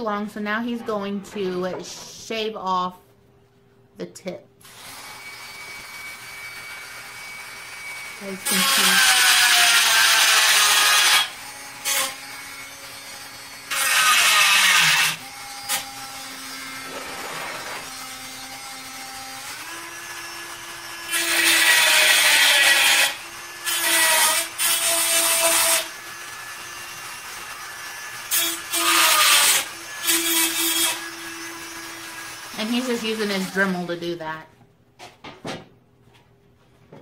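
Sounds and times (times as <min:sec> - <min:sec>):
rotary tool grinding metal: 0:04.7 - 0:33.8.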